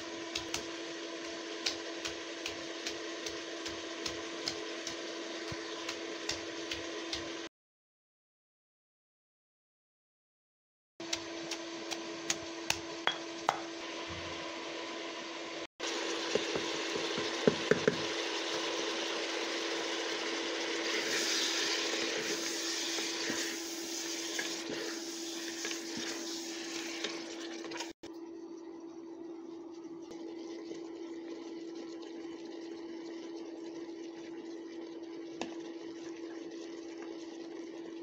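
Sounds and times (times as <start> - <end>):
meat sizzling in a pot: 0.0 - 7.5, 11.0 - 28.0.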